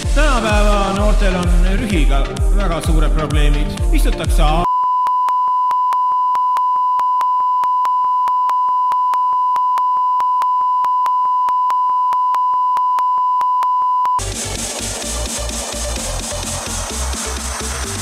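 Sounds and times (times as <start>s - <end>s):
electronic dance music: 0.0s - 4.7s, 14.2s - 18.0s
censor bleep tone: 4.6s - 14.2s.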